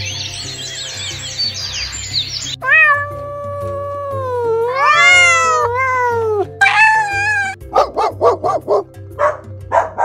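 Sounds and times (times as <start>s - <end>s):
background music with bass line: 0.0s - 10.0s
cat meowing: 2.6s - 7.6s
high held cry: 2.6s - 7.6s
dog yapping barks: 6.6s - 10.0s.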